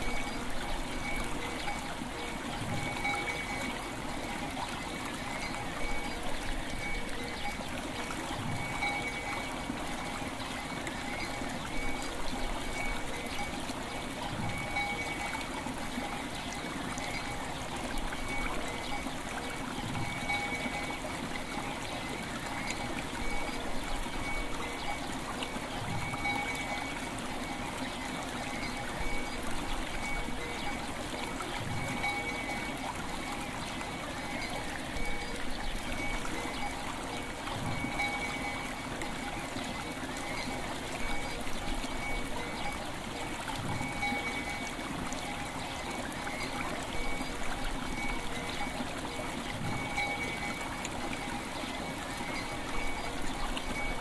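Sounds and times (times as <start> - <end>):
river water running: 0.0 - 54.0
bell tones ringing: 8.5 - 9.5, 14.4 - 15.3, 31.7 - 32.7.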